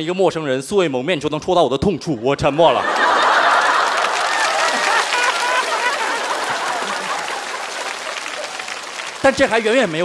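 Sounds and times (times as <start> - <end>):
audience laughing and applauding: 2.6 - 10.0.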